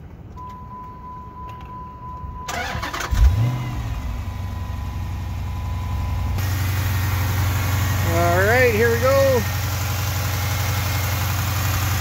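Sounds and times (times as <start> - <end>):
car engine revving and idling: 2.6 - 12.0.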